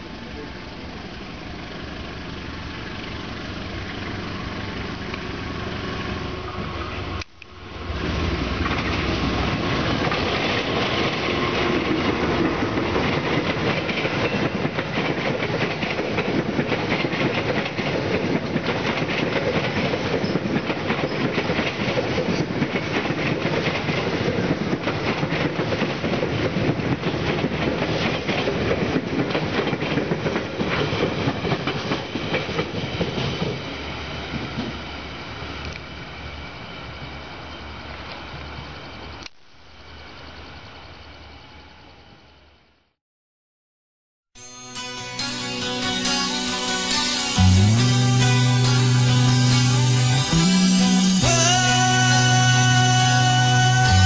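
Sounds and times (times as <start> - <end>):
train wheels clattering over rail joints: 8.3 - 34.9.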